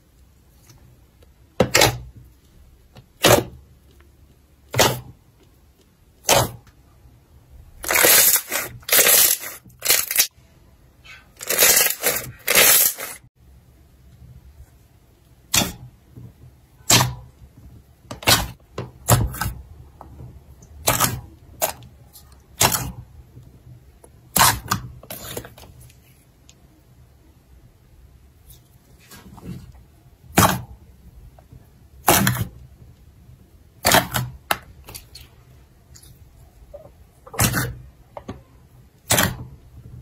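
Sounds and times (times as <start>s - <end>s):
slime squelching by hand: 7.8s - 10.3s.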